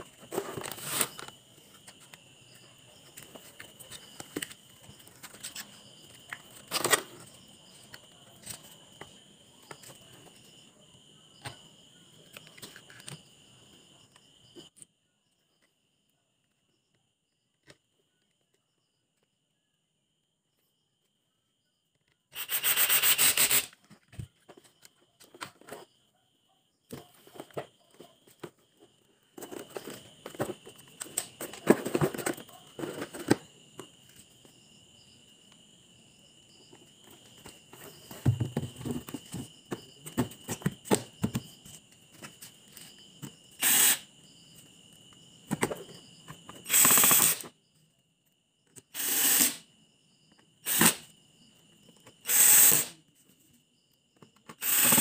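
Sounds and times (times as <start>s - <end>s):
clicks and rattles of parts: 3.1s - 9.1s, 29.3s - 34.2s.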